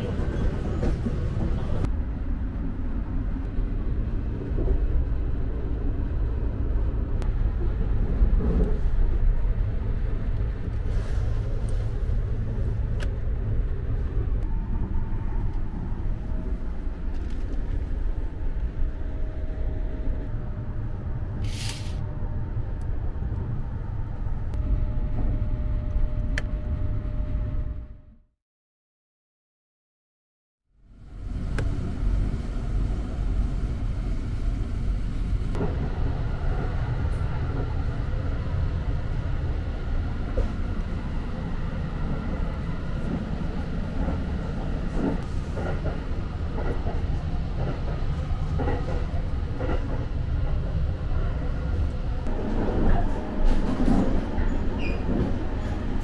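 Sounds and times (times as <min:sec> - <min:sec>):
train rumbling inside carriage: 0:00.0 - 0:28.2, 0:30.8 - 0:56.0
brief hiss: 0:21.4 - 0:22.0.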